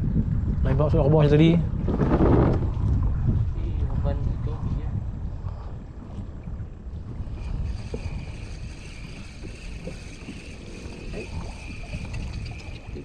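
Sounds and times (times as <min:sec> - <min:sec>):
wind buffeting microphone: 0:00.0 - 0:13.0
steady high whine: 0:06.8 - 0:13.0.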